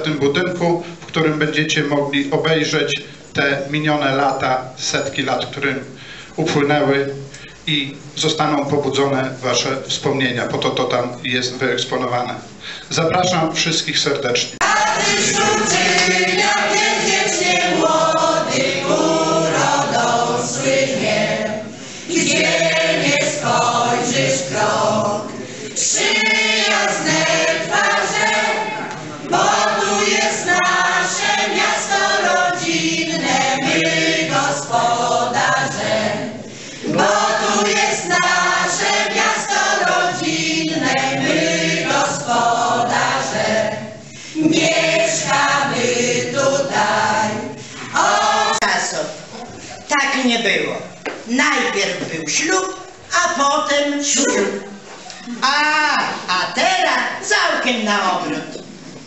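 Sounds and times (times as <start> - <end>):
choir singing a folk song: 14.6 - 48.9.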